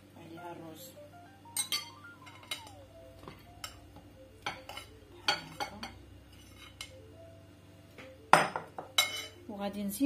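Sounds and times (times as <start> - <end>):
metal spoon clinking on glass bowls: 1.6 - 3.8, 4.4 - 7.0, 8.4 - 9.4.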